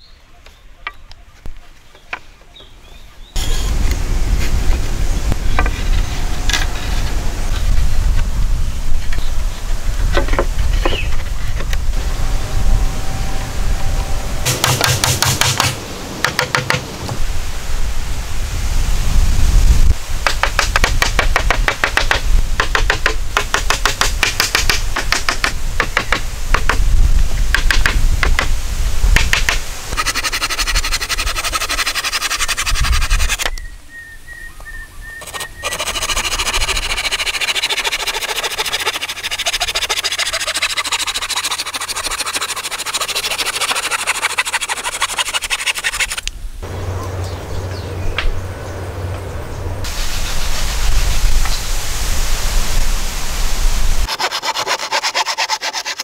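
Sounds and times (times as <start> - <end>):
saw rasping through wood: 14.4 - 15.8, 30.0 - 33.5, 35.2 - 46.2, 54.1 - 56.0
boards knocking and scraping: 14.5 - 17.2.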